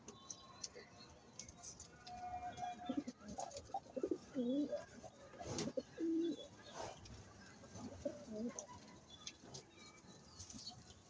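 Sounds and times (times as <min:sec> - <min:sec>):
pigeons cooing: 0:02.8 - 0:04.9, 0:05.5 - 0:06.5.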